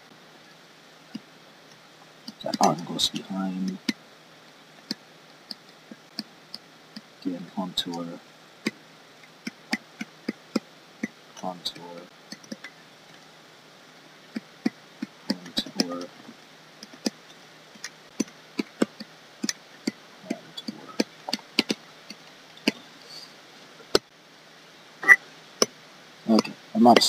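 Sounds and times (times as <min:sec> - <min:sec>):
tablet pen tapping and clicking: 0:12.3 - 0:12.7, 0:16.8 - 0:17.2, 0:17.8 - 0:20.0, 0:20.6 - 0:22.8.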